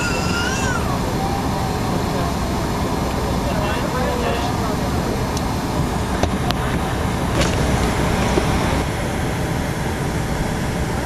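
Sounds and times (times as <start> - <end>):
cabin ventilation noise: 0.0 - 11.0.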